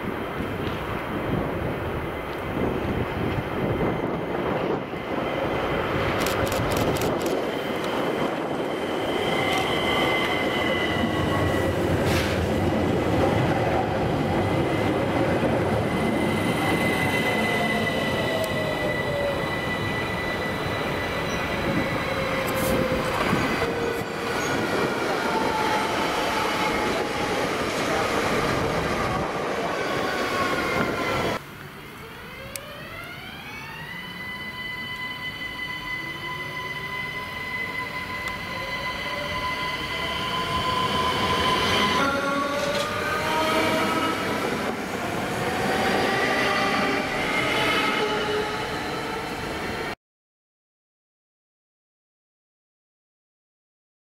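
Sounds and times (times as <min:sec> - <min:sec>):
train rumbling past: 0:00.0 - 0:31.4, 0:34.2 - 0:50.0
high wheel squeal: 0:08.6 - 0:11.7, 0:15.9 - 0:24.6.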